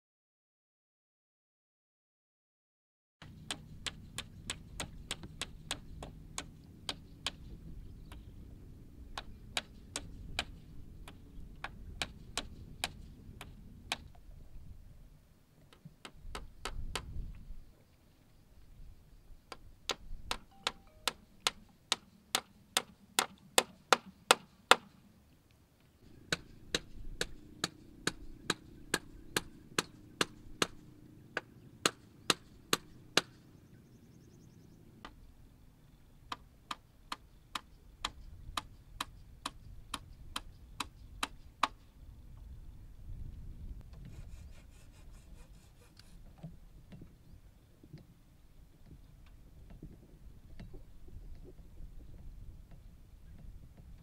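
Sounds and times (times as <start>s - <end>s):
hammer striking wooden poles: 19.9s - 24.9s, 26.3s - 30.8s.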